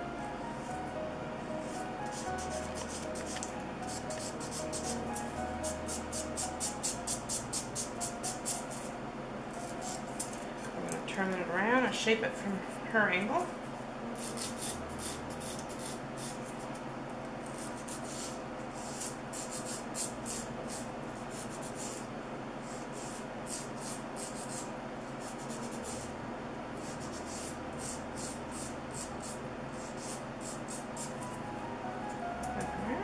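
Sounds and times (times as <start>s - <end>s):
nail file rasping: 26.8s - 31.1s.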